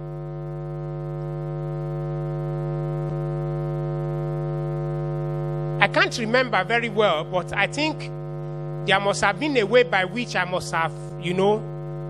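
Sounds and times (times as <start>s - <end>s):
sustained organ-style keyboard note: 5.2s - 11.8s.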